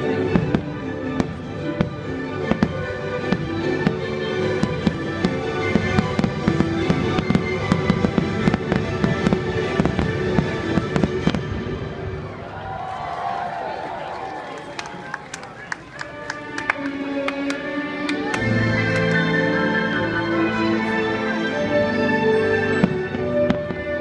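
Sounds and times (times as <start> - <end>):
show music with held notes: 0.0 - 12.1, 15.6 - 24.0
fireworks bangs and crackles: 0.0 - 12.3, 22.8 - 24.0.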